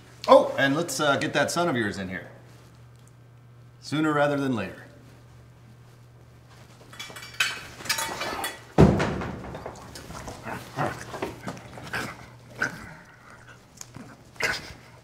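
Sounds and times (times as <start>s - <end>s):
door shutting with a thump: 8.8s - 9.8s.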